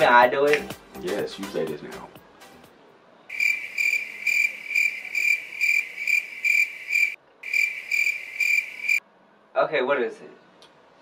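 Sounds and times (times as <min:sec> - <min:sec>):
crickets chirping: 0:03.3 - 0:09.0.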